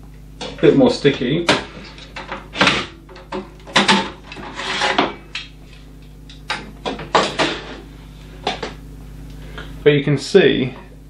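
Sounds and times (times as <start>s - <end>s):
drive trays clicking and knocking: 1.5s - 5.2s
trays scraping on rails: 4.2s - 5.2s.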